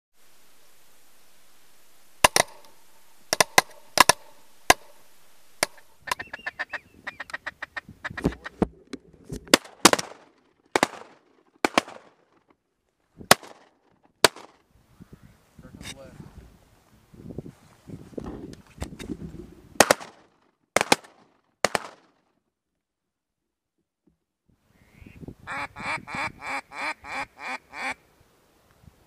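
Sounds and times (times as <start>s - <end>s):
faint hiss: 0.2s - 10.0s, 14.6s - 19.7s, 24.6s - 29.0s
ducks quacking: 5.6s - 8.7s, 24.8s - 28.0s.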